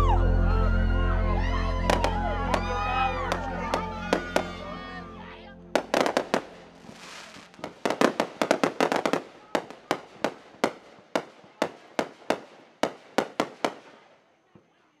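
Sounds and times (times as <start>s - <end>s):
fireworks bangs and crackles: 3.3s - 4.6s, 5.8s - 14.7s.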